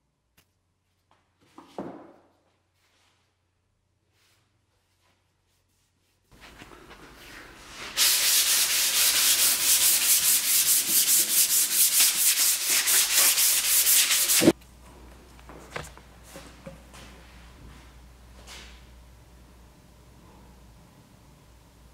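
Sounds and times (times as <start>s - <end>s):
paintbrush scrubbing wood: 5.4s - 14.6s.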